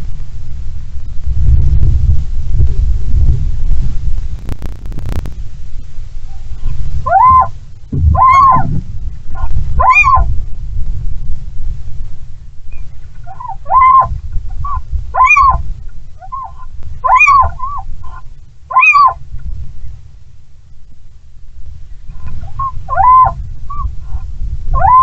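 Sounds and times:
strong wind rumble: 0.0s - 25.0s
owls calling: 6.3s - 10.3s, 12.7s - 15.6s, 16.2s - 19.2s, 22.1s - 25.0s.

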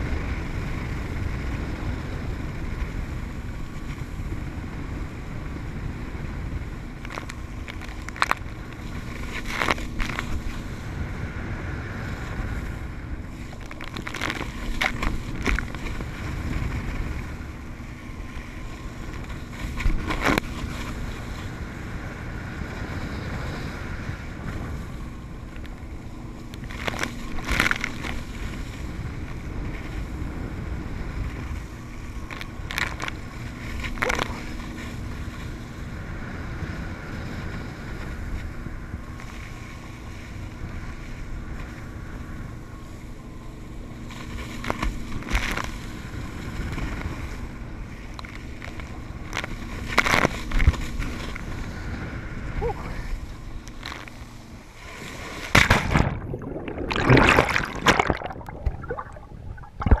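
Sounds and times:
faint boat engine hum: 0.0s - 60.0s
loud splashing and churning water: 0.0s - 60.0s
wind and water spray rushing: 0.0s - 60.0s
brief splashes: 54.9s - 60.0s.

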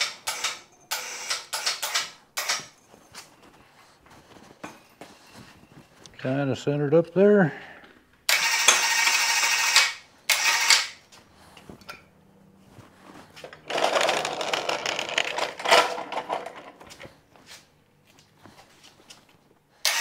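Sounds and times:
electric hoist motor running: 0.0s - 2.7s, 8.3s - 11.1s, 13.4s - 17.0s.

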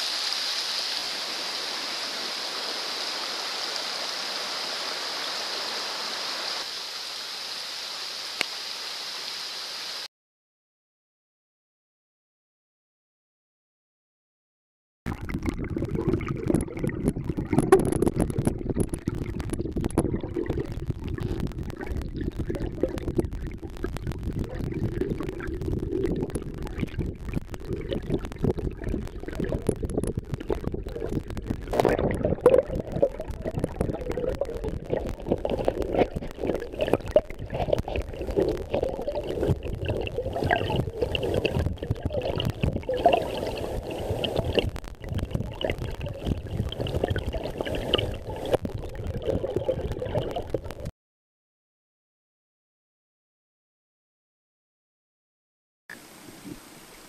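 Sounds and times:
underwater stream rumble and gurgle: 0.0s - 7.7s, 15.1s - 50.9s
small underwater clicks: 15.1s - 50.9s.

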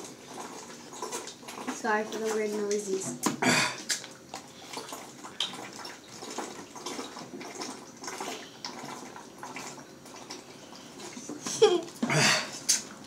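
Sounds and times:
person gulping water from bottle: 11.8s - 12.9s.

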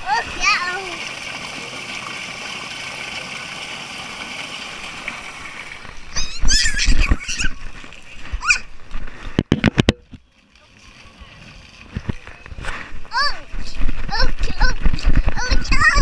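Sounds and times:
toddler squealing: 6.1s - 7.6s, 8.4s - 8.7s.

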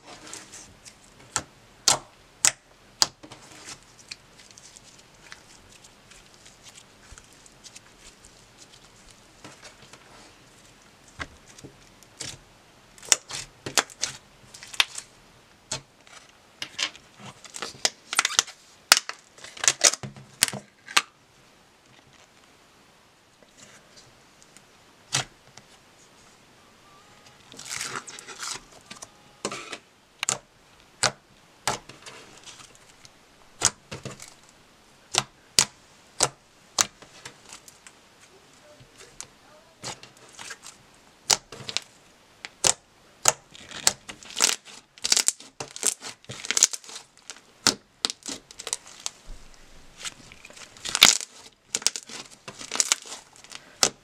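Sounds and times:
slime sticky tearing: 50.0s - 53.9s.

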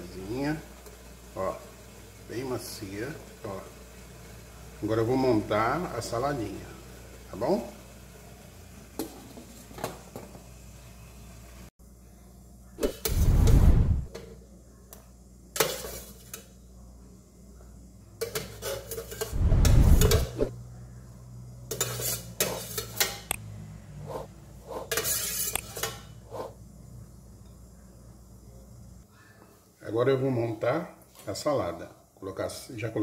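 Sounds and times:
metal spoon scraping steamer basket: 21.7s - 23.2s, 24.1s - 26.5s.

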